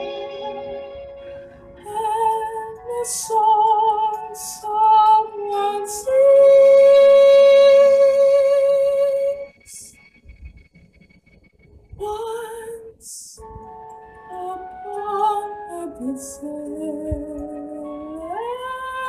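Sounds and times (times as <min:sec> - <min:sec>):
woman singing: 0:01.8 - 0:09.9, 0:12.0 - 0:13.4, 0:14.3 - 0:19.0.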